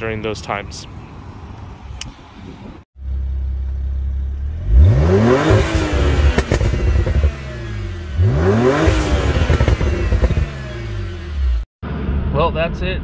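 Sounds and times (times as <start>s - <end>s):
car engine idling and revving: 3.0s - 12.5s
exhaust pops: 5.4s - 7.8s, 8.7s - 10.7s.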